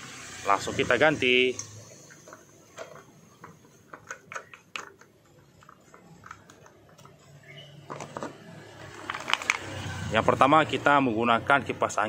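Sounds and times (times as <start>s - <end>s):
plastic clicks and taps: 2.8s - 7.2s.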